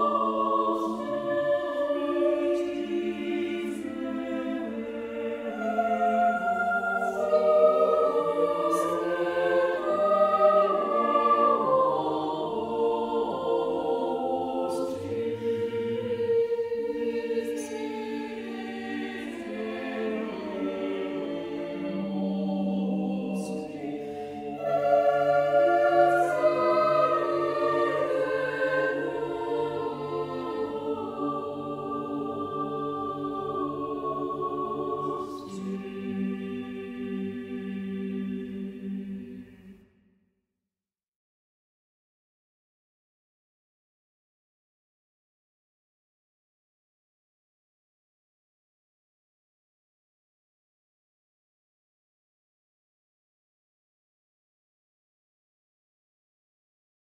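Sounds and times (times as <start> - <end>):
choir singing sacred piece: 0.0 - 40.0.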